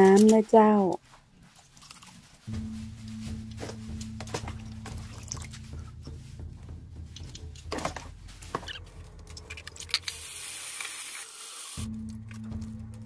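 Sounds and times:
water splashing and dripping: 1.6 - 10.9.

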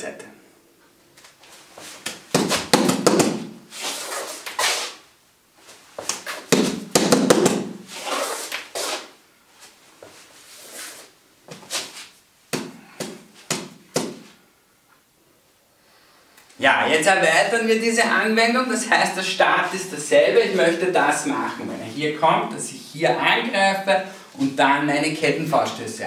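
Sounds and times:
fists striking padded targets: 2.3 - 3.6, 6.5 - 7.8, 12.5 - 14.2.

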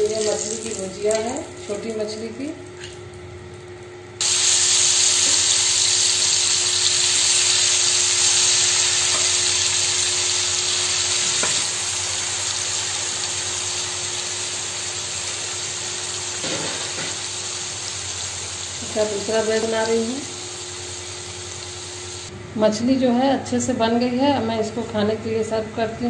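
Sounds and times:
fish sizzling in hot oil: 4.2 - 22.3.

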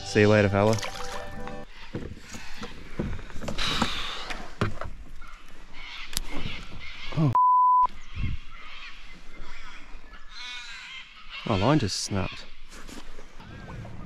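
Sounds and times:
censor beep: 7.3 - 7.9.

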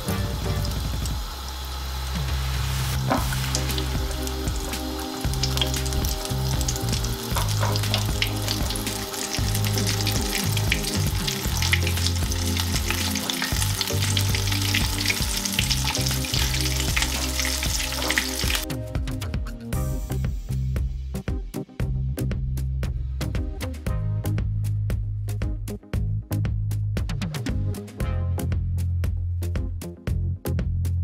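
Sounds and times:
chicken deep-frying in oil: 0.0 - 18.7
background music with bass notes: 0.0 - 31.0.

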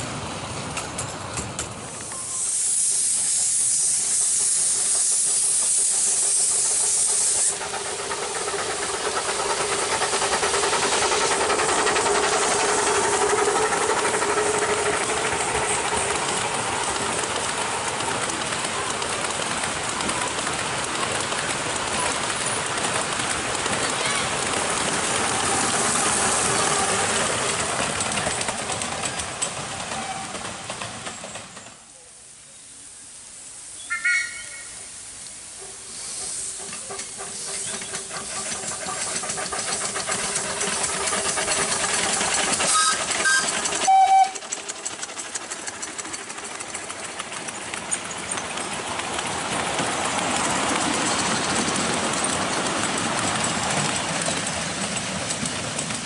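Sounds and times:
miniature train running past: 0.0 - 56.0
steam locomotive hissing: 0.0 - 56.0
steam whistle blasts: 33.8 - 34.9, 42.7 - 44.4.

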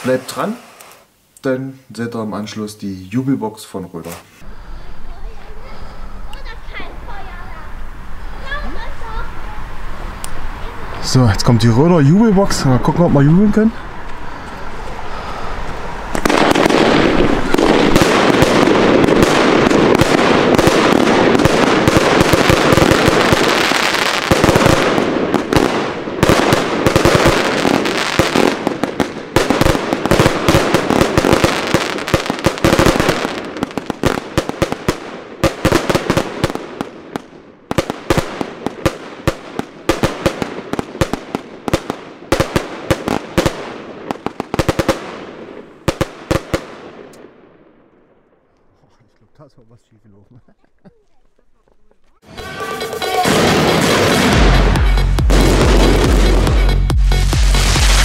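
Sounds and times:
firework barrage: 0.0 - 1.1, 14.2 - 47.5, 52.2 - 58.0
crackling firework bursts: 0.0 - 1.2, 14.0 - 47.2, 52.2 - 58.0.

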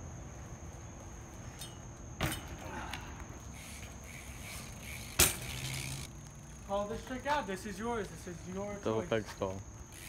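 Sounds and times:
bike landing thud: 1.5 - 3.2, 4.3 - 6.1.

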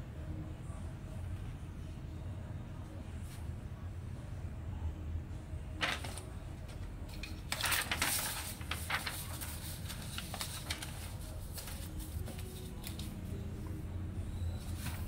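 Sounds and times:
low steady hum: 0.0 - 15.0
paper rustling in printer: 5.8 - 13.2, 14.6 - 15.0.

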